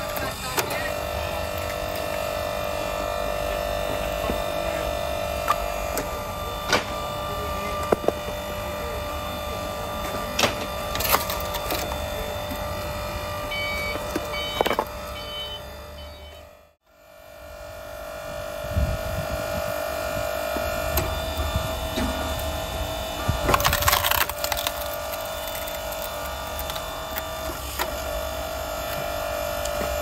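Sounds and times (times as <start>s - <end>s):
log splitter motor humming: 0.0s - 30.0s
wood pieces knocking and clattering: 23.4s - 26.8s.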